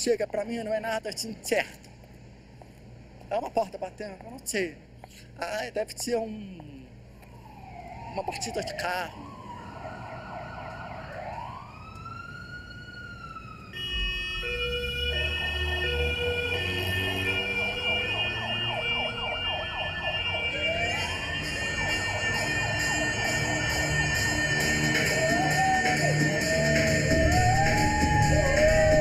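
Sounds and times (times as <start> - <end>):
siren wailing: 7.3 - 29.0
steady tones: 14.3 - 29.0.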